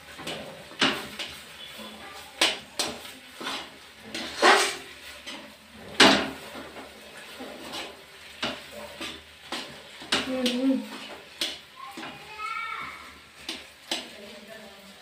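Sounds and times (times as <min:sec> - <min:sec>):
metal spoon scraping a wok: 0:00.0 - 0:11.6.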